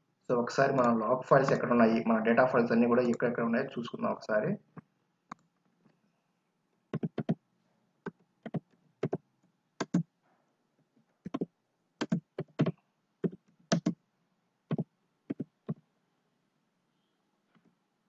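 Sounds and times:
computer keyboard typing: 6.9s - 7.4s, 8.0s - 9.2s, 9.8s - 10.0s, 11.3s - 14.0s, 14.7s - 15.8s.

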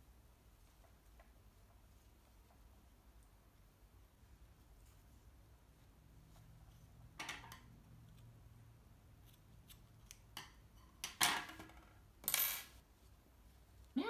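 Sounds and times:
scissors snipping yarn: 9.2s - 10.3s.

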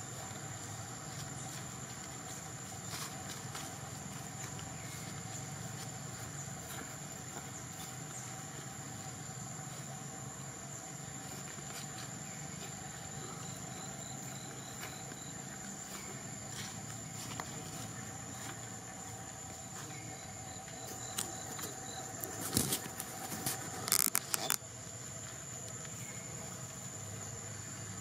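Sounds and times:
faint chirps: 0.0s - 28.0s
high-pitched insect drone: 0.0s - 28.0s
rustling: 11.2s - 24.6s.

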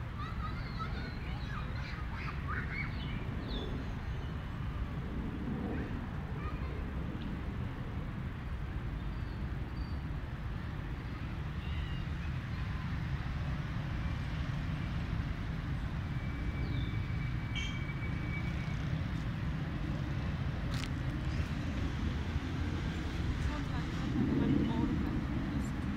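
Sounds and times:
steady low rumble: 19.4s - 25.9s.

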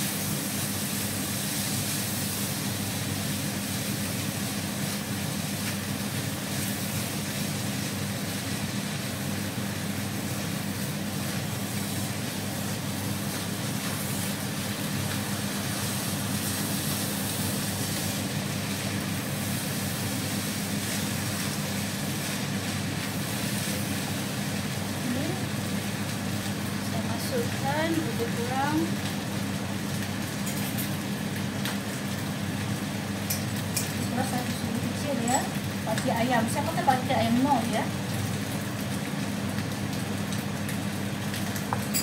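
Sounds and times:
cooling fan droning hum: 0.0s - 42.0s.

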